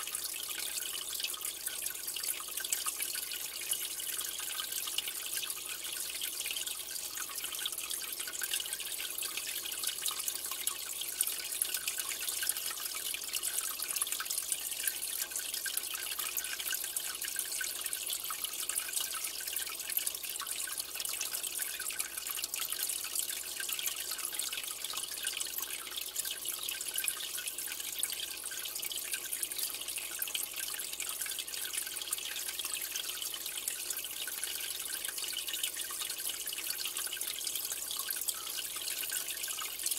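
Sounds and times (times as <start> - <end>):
aquarium water trickling: 0.0 - 39.9.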